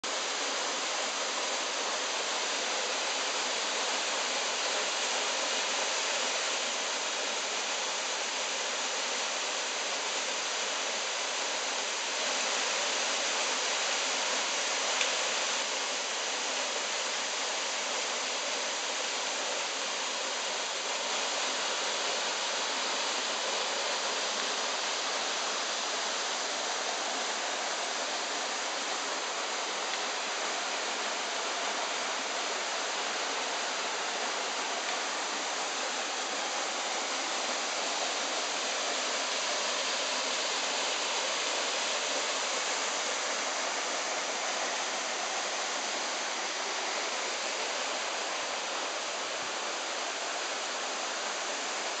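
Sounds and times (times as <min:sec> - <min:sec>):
waterfall rushing: 0:00.0 - 0:52.0.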